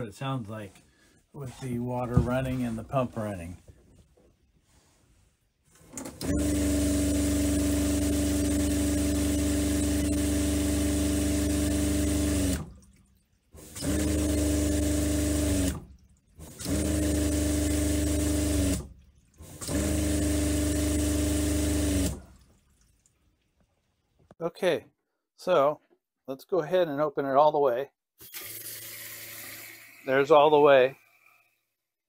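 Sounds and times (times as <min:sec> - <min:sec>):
water pump humming: 0:05.9 - 0:23.2.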